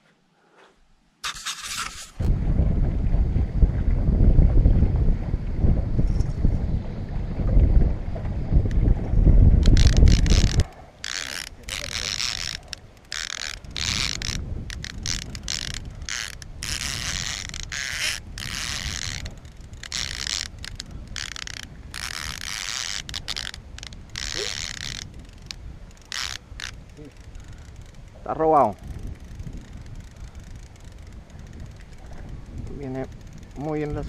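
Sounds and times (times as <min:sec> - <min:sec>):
wind on microphone: 0:01.3 - 0:34.0
boat rumble: 0:02.2 - 0:34.0
fishing reel gears whirring: 0:09.6 - 0:34.0.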